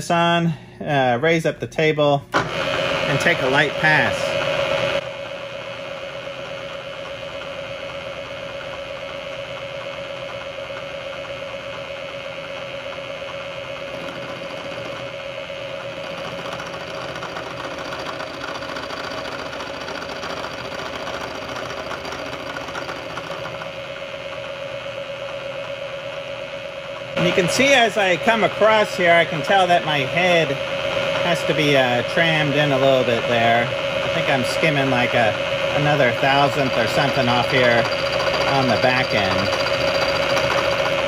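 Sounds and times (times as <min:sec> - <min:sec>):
milling machine hum: 0:02.3 - 0:41.0
cutter hissing on metal: 0:27.2 - 0:41.0.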